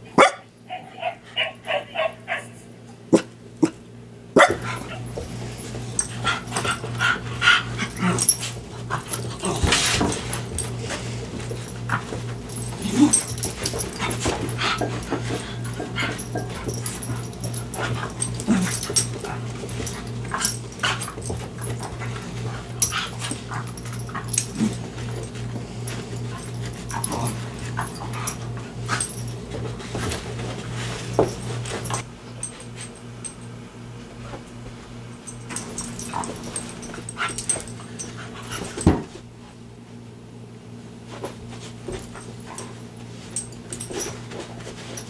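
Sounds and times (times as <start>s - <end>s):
paws scuffling on wooden floor: 4.4s - 33.1s, 41.0s - 45.0s.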